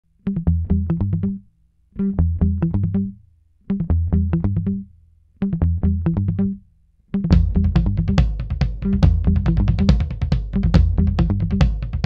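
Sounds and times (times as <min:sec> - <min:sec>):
plucked guitar notes: 0:02.0 - 0:06.6, 0:07.2 - 0:11.6
low bass line: 0:07.3 - 0:12.0.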